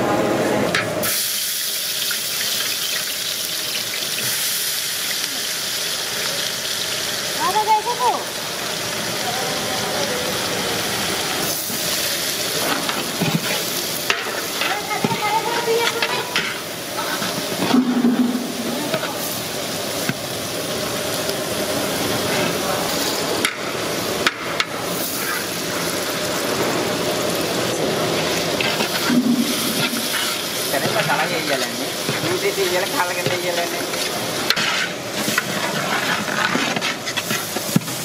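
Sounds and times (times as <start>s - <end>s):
onions sizzling in hot oil: 0.8s - 38.0s
metal ladle scraping a pot: 28.6s - 31.0s, 33.8s - 37.8s.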